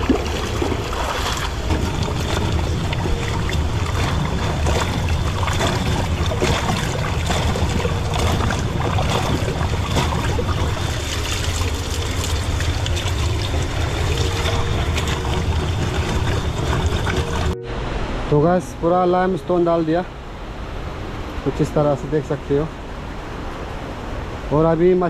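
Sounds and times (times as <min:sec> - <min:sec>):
splashing in water: 0:00.0 - 0:17.6
stream rushing over rocks: 0:00.0 - 0:25.0.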